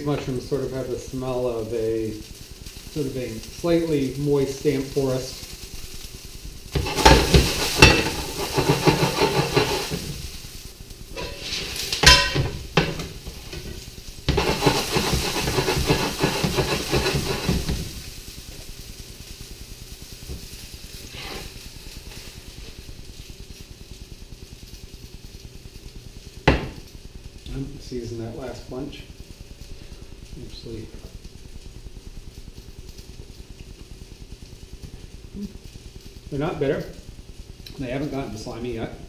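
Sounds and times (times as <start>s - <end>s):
mushrooms sizzling in hot oil: 0.0s - 39.0s
stirring in a frying pan: 1.0s - 22.8s.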